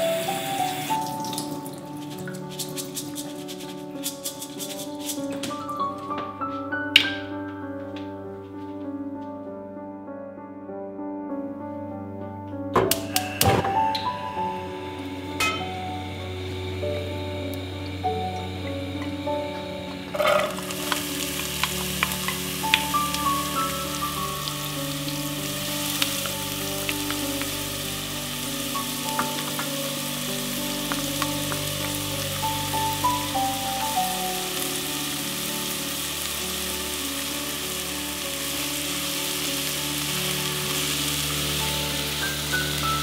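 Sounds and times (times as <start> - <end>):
vegetables sizzling in oil: 0.0 - 4.9, 12.9 - 43.0
soft background music: 0.0 - 43.0.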